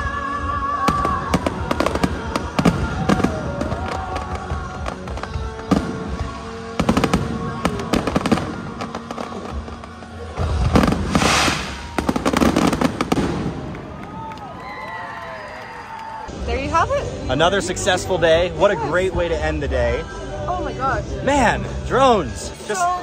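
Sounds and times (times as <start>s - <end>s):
music: 0.0s - 23.0s
fireworks bursting and crackling: 0.8s - 14.8s.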